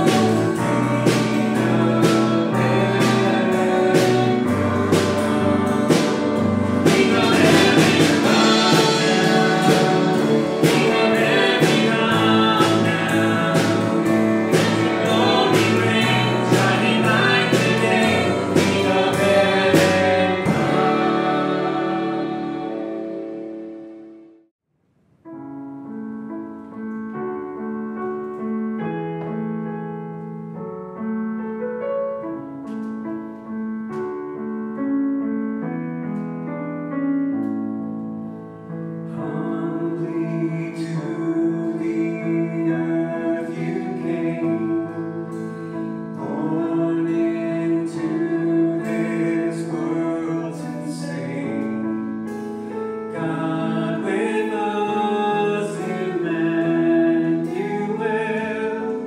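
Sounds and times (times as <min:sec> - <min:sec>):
person singing: 0:00.0 - 0:23.5, 0:39.1 - 0:59.0
piano chords and melody: 0:00.0 - 0:24.5, 0:25.2 - 0:59.0.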